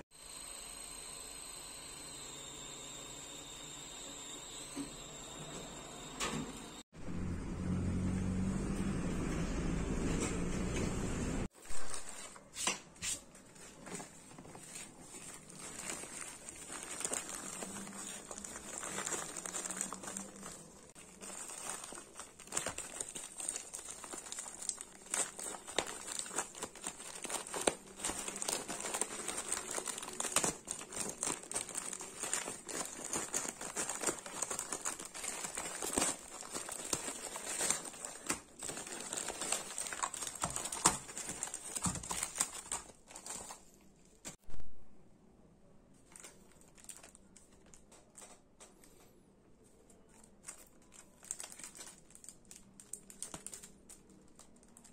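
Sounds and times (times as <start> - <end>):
packaging crinkling: 11.6 - 12.5, 13.2 - 44.4, 46.0 - 48.4, 49.9 - 54.9.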